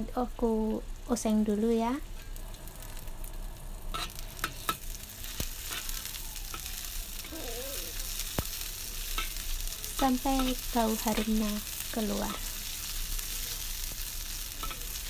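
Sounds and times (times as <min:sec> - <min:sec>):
food sizzling in hot oil: 0:00.0 - 0:15.0
spatula knocking and scraping wok: 0:08.1 - 0:12.9, 0:14.5 - 0:15.0.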